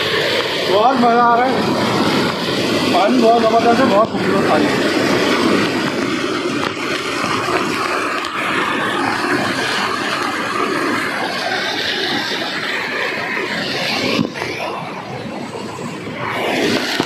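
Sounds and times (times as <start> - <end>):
waterfall pouring onto person: 0.0 - 17.0.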